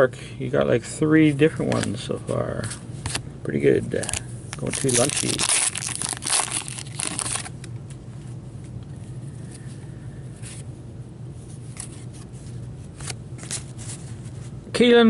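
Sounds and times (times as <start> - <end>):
foil wrapper crinkling: 4.6 - 7.6
cards sliding: 11.6 - 14.2.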